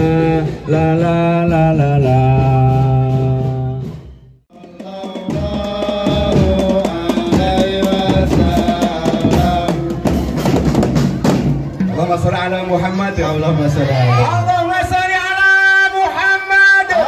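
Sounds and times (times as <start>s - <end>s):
music with drums and percussion: 0.0s - 13.0s
voices singing la la: 4.5s - 10.6s.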